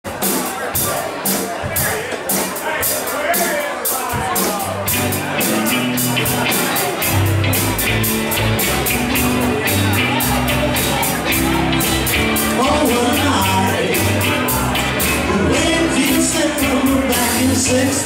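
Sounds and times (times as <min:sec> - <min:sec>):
rock band playing: 0:00.1 - 0:18.0
man singing: 0:12.4 - 0:18.0.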